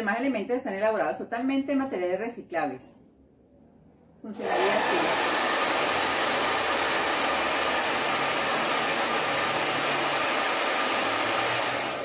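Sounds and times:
hair dryer blowing air: 4.3s - 12.0s.

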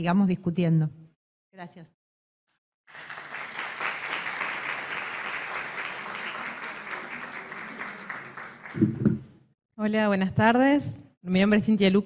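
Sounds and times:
audience applause: 2.9s - 9.3s.

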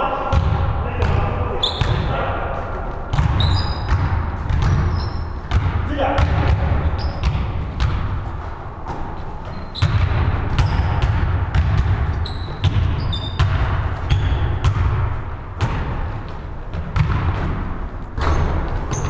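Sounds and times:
basketball bouncing on wooden floor: 0.3s - 2.1s, 3.1s - 19.0s
sneaker squeaks: 1.5s - 5.6s, 6.8s - 7.6s, 8.9s - 11.2s, 12.0s - 14.7s, 18.2s - 19.0s.

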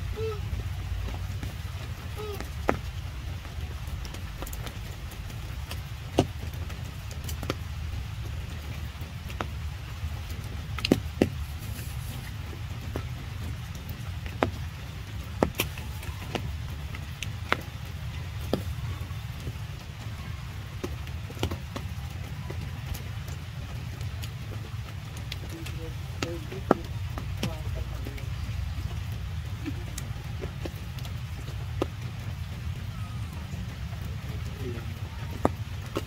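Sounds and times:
rain falling: 0.0s - 36.0s
raindrops ticking close by: 0.0s - 36.0s
steady low rumble: 0.0s - 36.0s.

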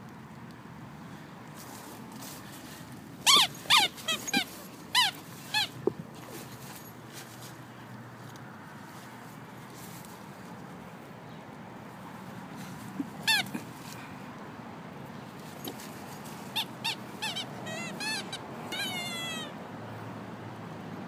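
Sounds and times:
squeaky dog toy squeaking: 3.2s - 5.8s, 13.2s - 13.6s, 16.5s - 19.6s.

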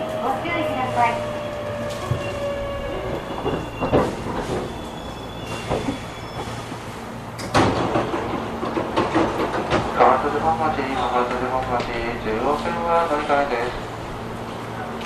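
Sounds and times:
train wheels rumbling on rail: 0.0s - 15.0s
loud clunk: 7.4s - 9.8s.

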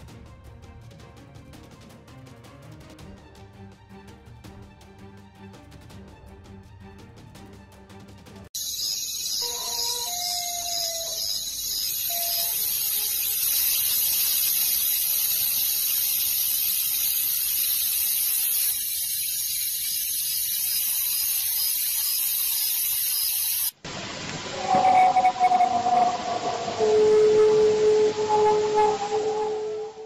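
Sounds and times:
wolf howling: 9.4s - 11.5s, 24.5s - 30.0s
recording hiss: 10.7s - 29.6s.

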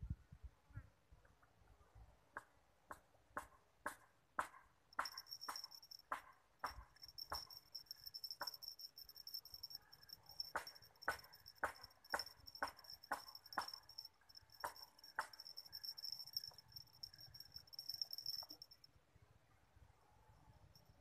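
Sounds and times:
high insect trill: 5.0s - 18.9s.

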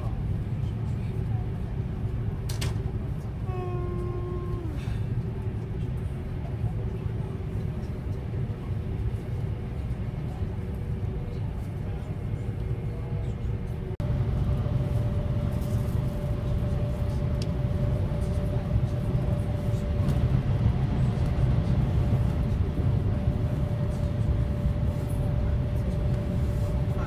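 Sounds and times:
steady whine: 13.7s - 27.0s.

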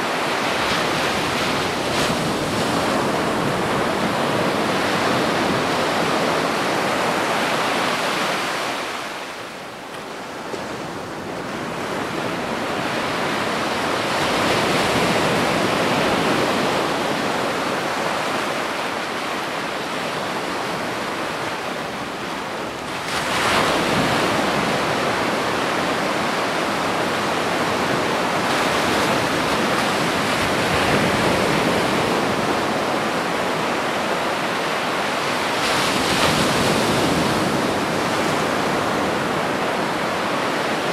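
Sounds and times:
wind: 0.0s - 40.9s.

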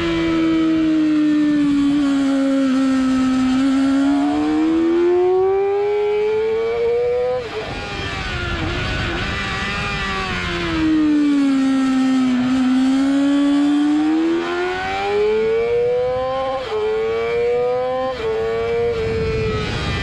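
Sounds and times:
motorcycle engine revving: 0.0s - 20.0s
wind rush: 18.6s - 20.0s.

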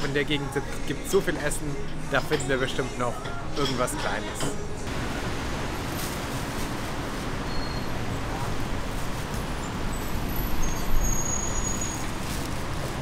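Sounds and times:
road traffic: 4.8s - 13.0s.

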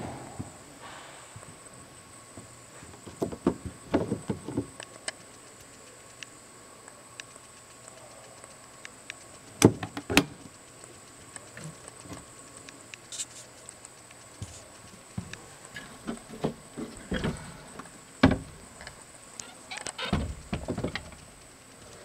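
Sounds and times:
faint high whine: 0.0s - 22.0s
loud bumps: 18.2s - 18.7s, 20.0s - 21.4s.

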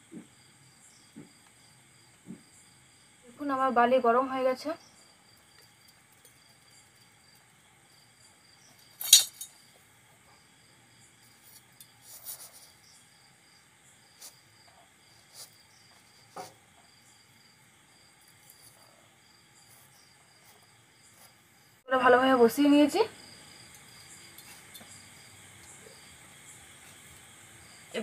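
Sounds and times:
crickets chirping: 0.0s - 28.0s
light metal clinks: 8.8s - 9.7s, 23.7s - 25.8s
metal ring clanking: 9.0s - 9.6s.

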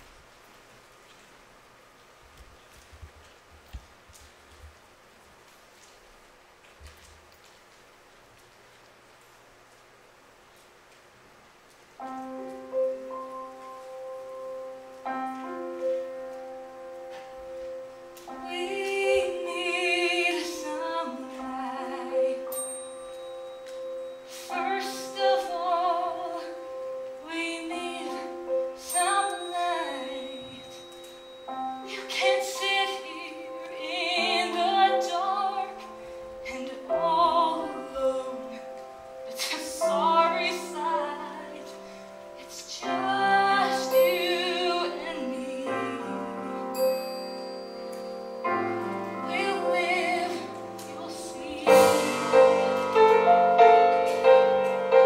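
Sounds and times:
piano chords: 11.9s - 55.0s
woman singing with vibrato: 18.3s - 22.6s, 24.3s - 30.8s, 31.8s - 38.7s, 39.3s - 41.8s, 42.4s - 46.6s, 49.1s - 53.0s.

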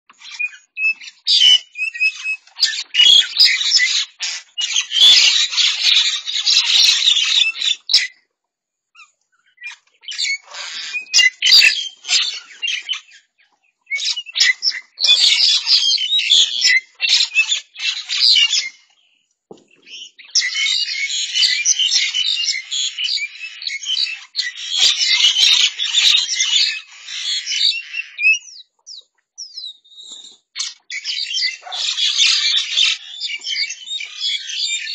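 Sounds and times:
flock of birds squawking: 0.1s - 8.2s, 9.0s - 34.9s.

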